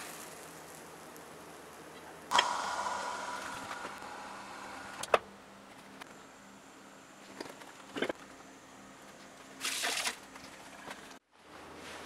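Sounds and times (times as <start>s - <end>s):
faint steady hum: 0.3s - 9.6s.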